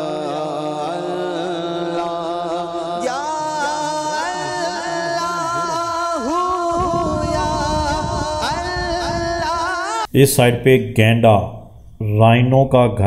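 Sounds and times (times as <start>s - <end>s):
steady drone: 0.0s - 10.1s
low rumble: 6.3s - 9.8s.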